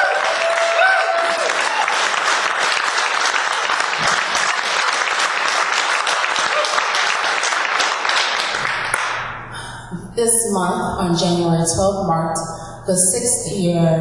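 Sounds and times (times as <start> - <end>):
high-pitched whoop from crowd: 0.0 - 2.0
audience applauding: 0.0 - 9.4.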